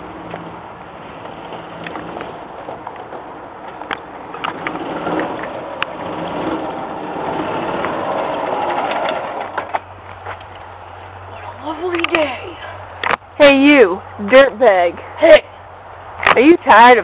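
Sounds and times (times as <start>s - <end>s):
golf cart motor with rattles: 4.3s - 10.7s.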